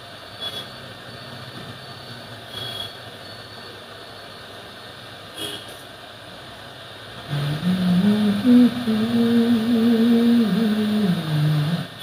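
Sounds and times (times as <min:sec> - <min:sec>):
man humming: 0:07.3 - 0:12.0.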